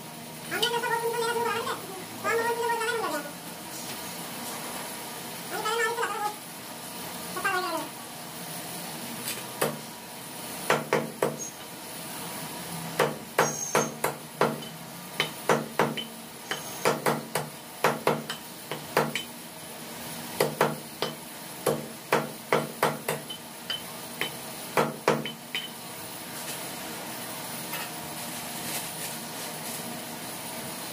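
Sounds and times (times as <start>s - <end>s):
cleaver chopping on wooden block: 13.0s - 19.2s.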